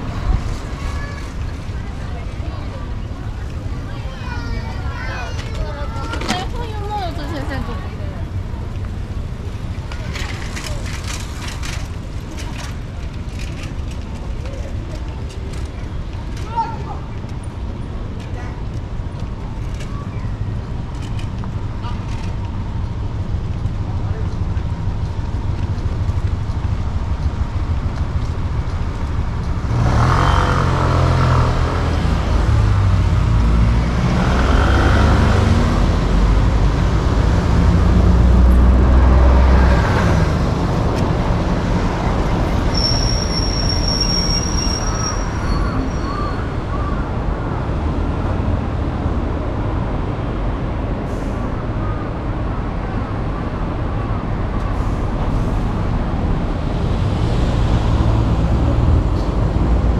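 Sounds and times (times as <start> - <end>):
road traffic rumble: 0.0 - 59.9
deep vehicle engine passing: 28.4 - 42.7
high-pitched squeal: 42.6 - 46.9.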